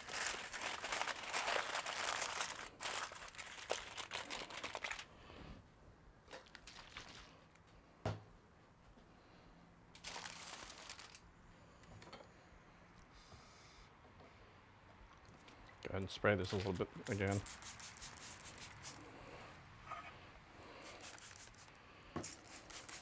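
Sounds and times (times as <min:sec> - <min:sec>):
aluminium foil crinkling: 0:00.0 - 0:05.2, 0:10.0 - 0:11.3, 0:20.8 - 0:21.7, 0:22.4 - 0:23.0.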